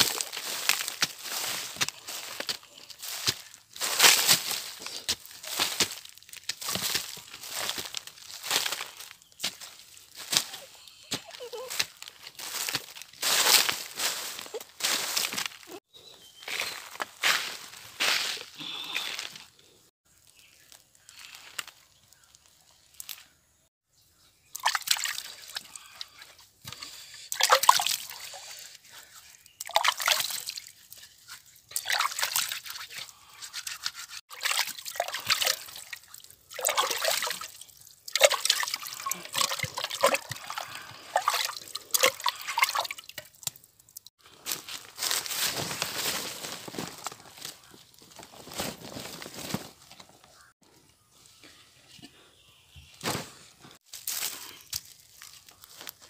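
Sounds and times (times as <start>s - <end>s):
water sloshing in a clay pot: 24.5s - 26.3s, 27.3s - 28.4s, 29.4s - 44.0s
water trickling: 34.3s - 44.1s.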